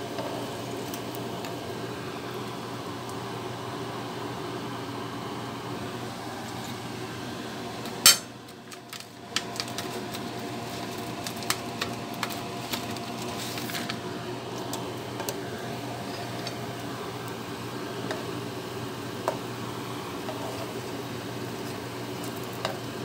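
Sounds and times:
steady background hum: 0.0 - 23.0
rice crackers crackling in plastic bag: 8.6 - 14.0.

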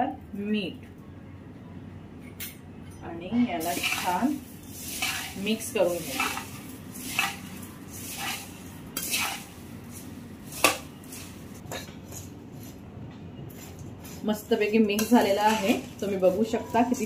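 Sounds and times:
spoon scraping a bowl: 3.7 - 12.8, 13.5 - 17.0.

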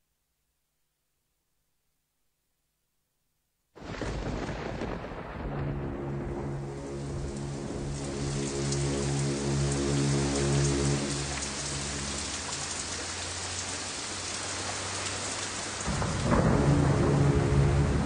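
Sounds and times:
thunder rumble: 3.8 - 10.3, 15.7 - 18.0
steady rain: 3.8 - 18.0.

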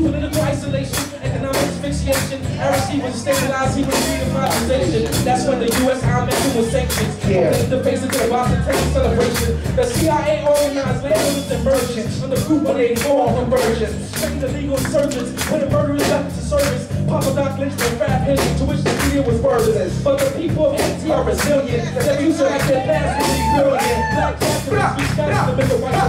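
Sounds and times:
bass guitar notes: 0.0 - 26.0
drum kit beat: 0.0 - 26.0.

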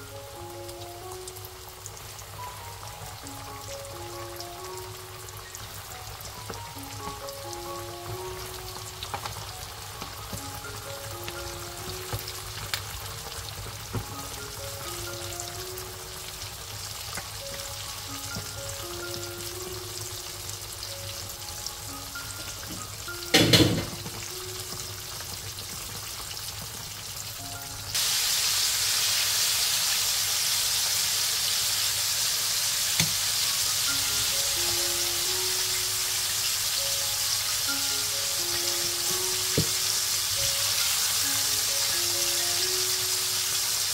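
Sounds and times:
background music: 0.0 - 25.5, 27.4 - 28.0, 33.6 - 43.9
wings deep-frying in hot oil: 0.0 - 43.9.

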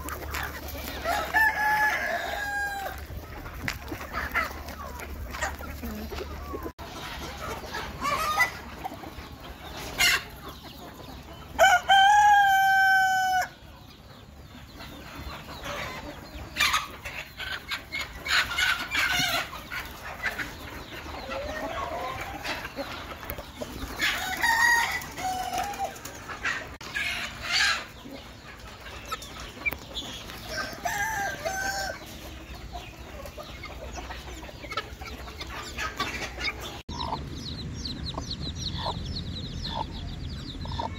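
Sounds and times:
chickens clucking: 0.0 - 40.9
rooster crowing: 1.0 - 3.0, 11.6 - 13.6.

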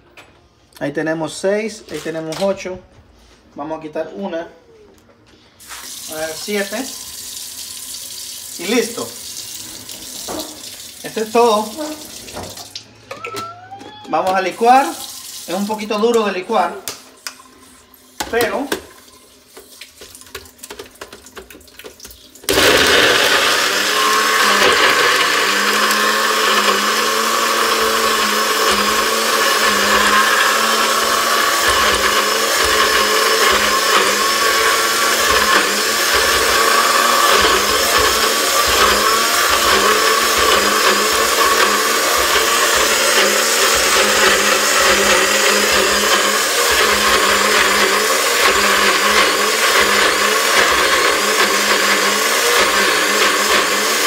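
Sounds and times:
blender motor running: 6.0 - 12.5, 22.5 - 54.0.

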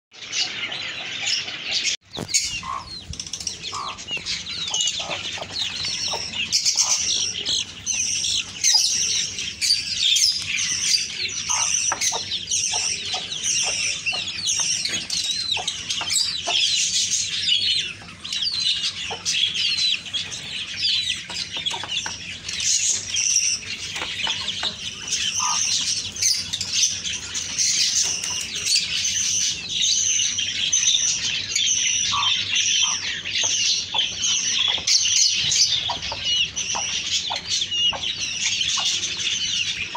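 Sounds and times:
chicks peeping: 0.2 - 39.9.

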